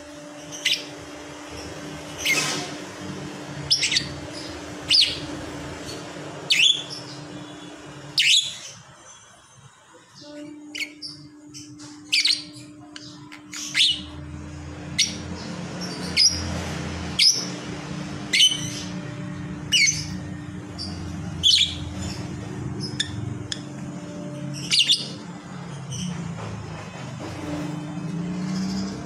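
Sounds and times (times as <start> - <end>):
bird chirping: 3.6 - 16.5, 18.3 - 26.2.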